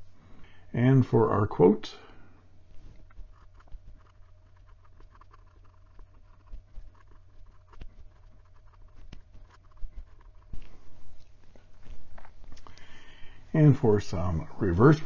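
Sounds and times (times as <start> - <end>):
faint steady hum: 0.0 - 15.0
pen scratching on paper: 3.0 - 12.4.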